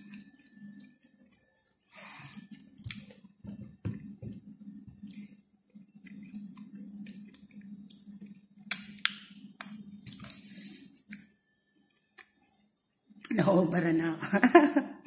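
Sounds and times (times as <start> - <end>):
person chewing: 0.0 - 3.4, 4.0 - 11.3
steady low hum: 0.0 - 15.0.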